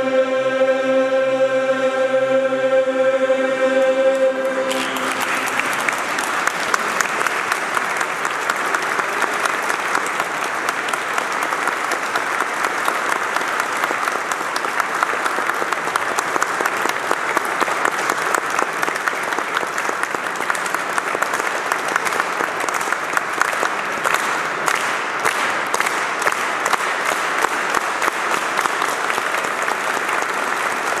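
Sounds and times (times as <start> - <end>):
crowd applause: 3.3 - 31.0.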